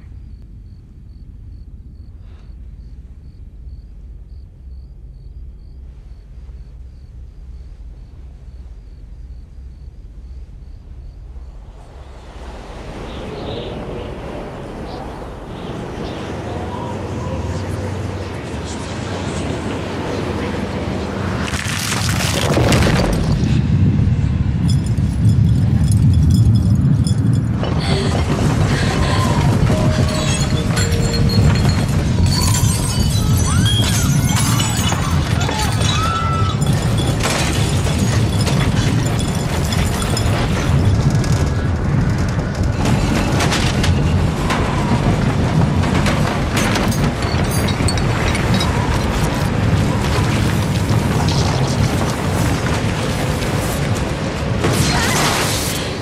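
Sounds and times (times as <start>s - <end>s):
low background rumble: 0.0s - 54.8s
soft rush of noise: 5.0s - 21.4s
thin high tones: 29.6s - 34.6s.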